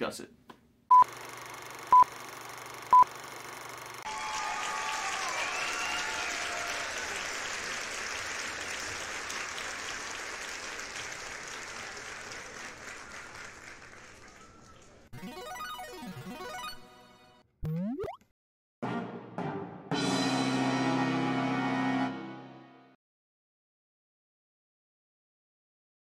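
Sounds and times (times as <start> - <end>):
crowd applause and cheering: 4.0 - 15.1
whistles: 5.3 - 6.4
countdown beeps: 15.2 - 18.2.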